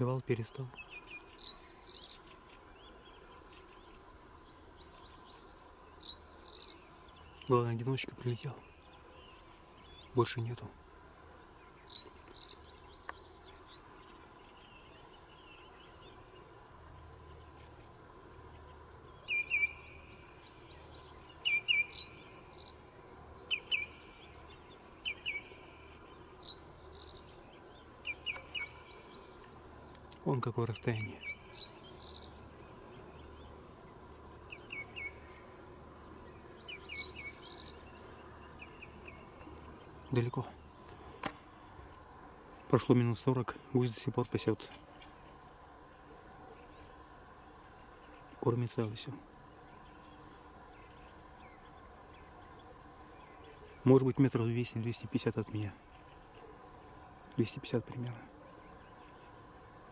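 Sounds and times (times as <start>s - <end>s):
open-air background noise: 0.0s - 59.9s
small birds chirping: 0.0s - 59.9s
bird trill: 18.5s - 29.4s, 34.5s - 35.5s, 36.2s - 40.4s.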